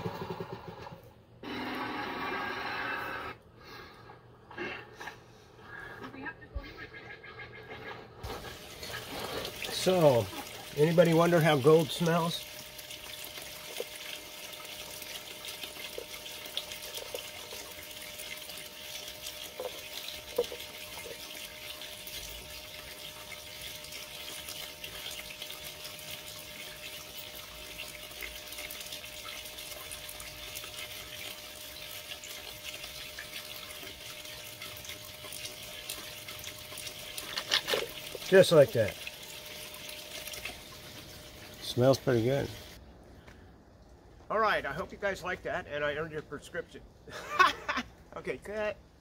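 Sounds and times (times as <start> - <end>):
running water hiss: 8.2 - 42.8.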